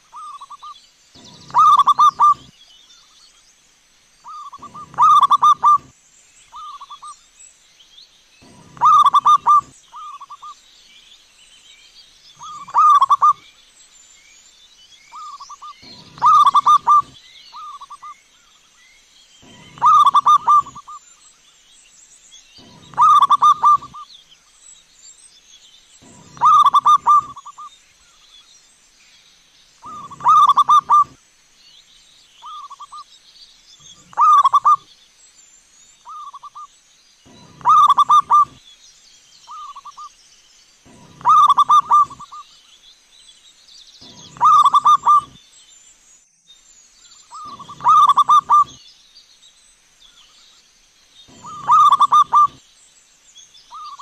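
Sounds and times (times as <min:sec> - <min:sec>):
dove cooing: 0:01.2 - 0:02.5, 0:04.3 - 0:05.9, 0:08.4 - 0:10.4, 0:12.4 - 0:13.4, 0:15.2 - 0:18.0, 0:19.4 - 0:21.0, 0:22.6 - 0:24.0, 0:26.0 - 0:27.7, 0:29.8 - 0:31.2, 0:33.9 - 0:34.8, 0:37.3 - 0:38.6, 0:40.9 - 0:42.4, 0:44.0 - 0:45.4, 0:47.4 - 0:48.8, 0:51.3 - 0:52.6.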